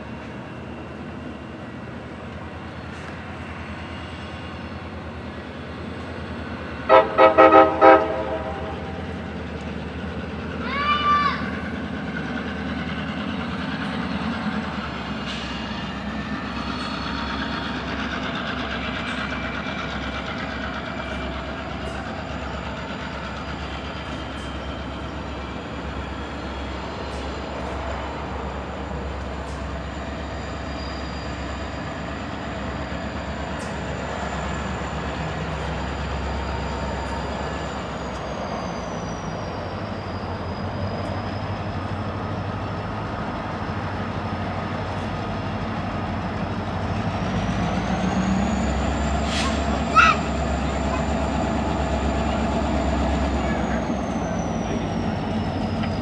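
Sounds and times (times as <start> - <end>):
locomotive engine rumble: 0.0 - 56.0
locomotive horn blasts: 6.8 - 9.0.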